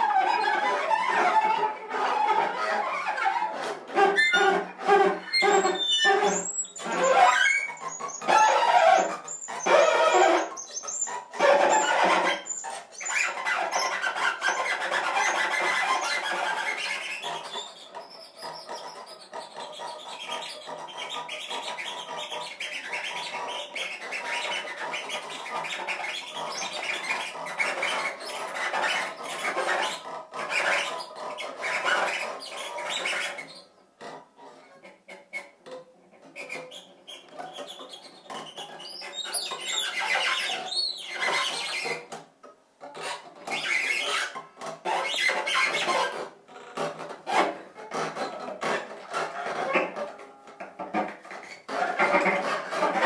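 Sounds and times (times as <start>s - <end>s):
cello scratchy bow noise: 0.0s - 35.5s, 43.0s - 53.0s.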